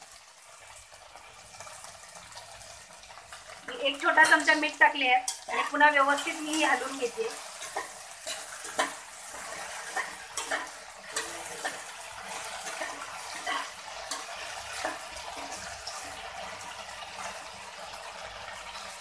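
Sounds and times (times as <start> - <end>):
okra sizzling in hot oil: 0.0 - 19.0
steel spoon scraping a pan: 5.2 - 16.5.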